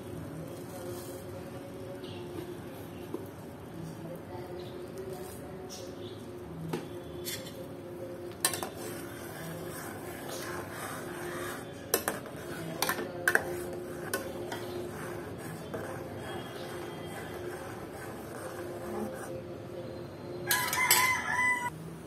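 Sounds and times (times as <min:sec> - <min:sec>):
spoon stirring oats: 0:08.4 - 0:19.2.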